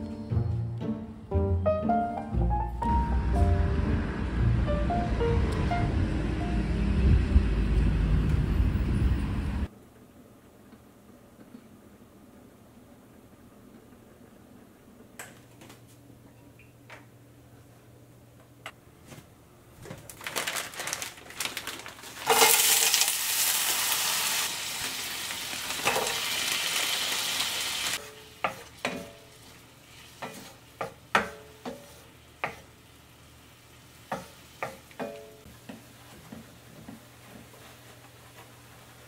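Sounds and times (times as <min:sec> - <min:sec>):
food sizzling in a frying pan: 0:22.1 - 0:34.9.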